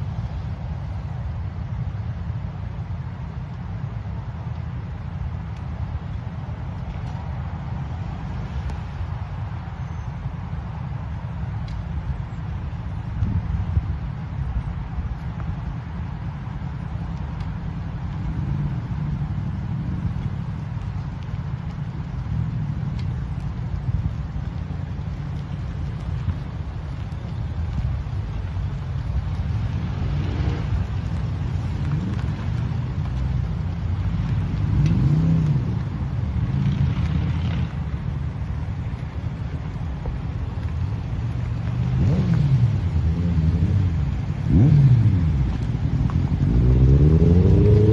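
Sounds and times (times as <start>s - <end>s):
low engine and tyre rumble: 0.0s - 47.9s
wind buffeting microphone: 0.0s - 47.9s
engine idling and revving: 41.6s - 47.9s.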